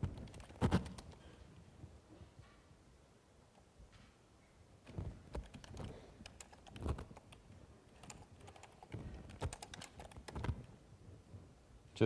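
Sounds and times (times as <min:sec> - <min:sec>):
keyboard typing: 0:00.0 - 0:01.2, 0:05.3 - 0:07.4, 0:08.0 - 0:10.7.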